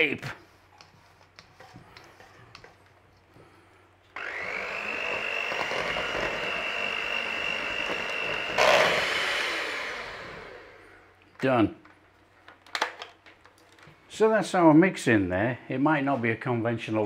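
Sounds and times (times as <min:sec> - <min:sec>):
electric hand mixer whining: 0:04.2 - 0:11.0.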